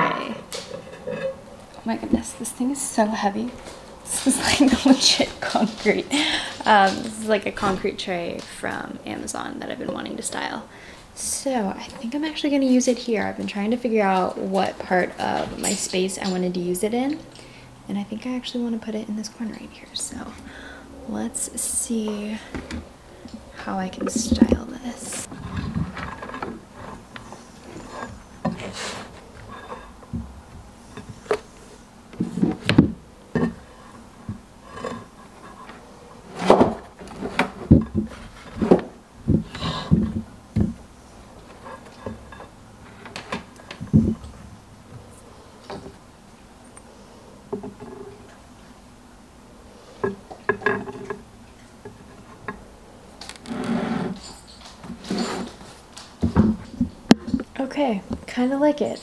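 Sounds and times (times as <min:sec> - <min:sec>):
objects knocking and scraping: 0:00.5 - 0:02.4, 0:22.0 - 0:46.0, 0:47.5 - 0:48.4, 0:50.0 - 0:58.3
objects scraping on concrete tray: 0:53.3 - 0:55.8.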